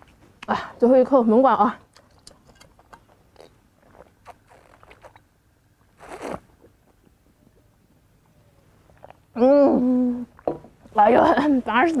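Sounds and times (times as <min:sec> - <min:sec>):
swallowing: 0:03.3 - 0:07.7, 0:08.3 - 0:09.4
mouth clicks: 0:03.4 - 0:05.3.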